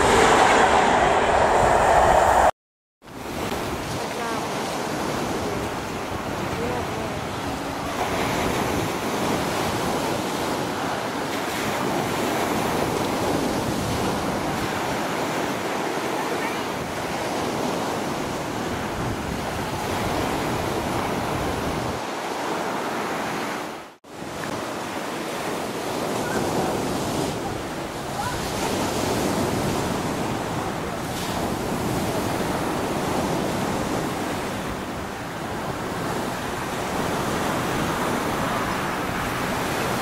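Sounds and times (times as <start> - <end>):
sea surf: 0.0 - 2.6, 3.2 - 40.0
wind rushing across microphone: 0.0 - 2.6, 27.0 - 40.0.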